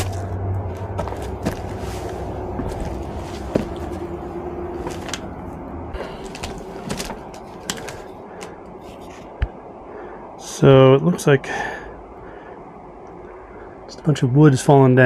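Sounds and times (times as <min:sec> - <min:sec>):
footsteps crunching on gravel: 0:00.0 - 0:05.3, 0:06.0 - 0:08.1
wood knocking and scraping underfoot: 0:00.0 - 0:05.3, 0:06.0 - 0:09.5.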